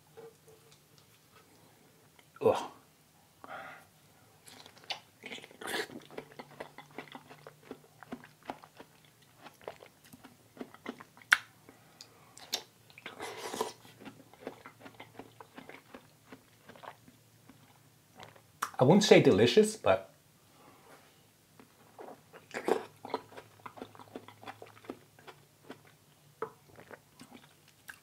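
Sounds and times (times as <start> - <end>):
wet chewing: 4.4 - 18.8, 22.0 - 28.0
mouth clicks and smacks: 9.5 - 11.5, 12.4 - 13.8, 18.2 - 18.8.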